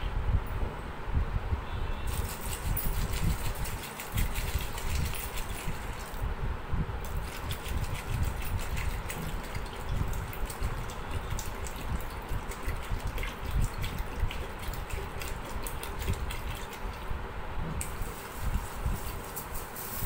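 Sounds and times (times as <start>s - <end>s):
water pouring into metal bowl: 7.1s - 17.0s
water dripping: 7.2s - 17.1s.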